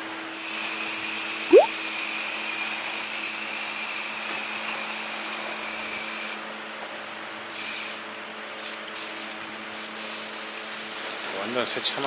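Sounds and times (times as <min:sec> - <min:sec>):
thin high whistle: 0:01.5 - 0:01.7.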